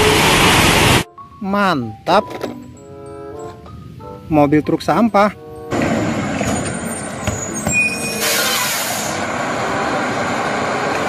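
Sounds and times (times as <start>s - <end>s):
garbage truck engine running: 5.7s - 11.0s
sharp hiss of air: 8.2s - 9.3s.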